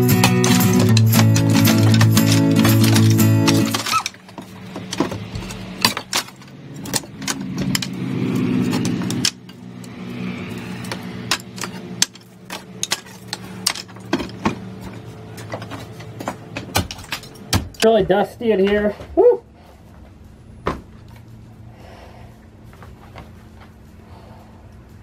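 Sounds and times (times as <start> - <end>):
falling debris clattering: 0.0 - 9.3, 11.2 - 17.8
steady low hum: 0.0 - 25.0.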